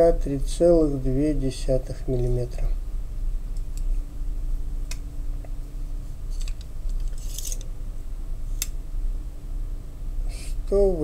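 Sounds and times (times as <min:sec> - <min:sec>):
steady low hum: 0:00.0 - 0:11.0
caliper scraping on knife handle: 0:06.3 - 0:07.7
metal caliper clicks: 0:06.4 - 0:07.7.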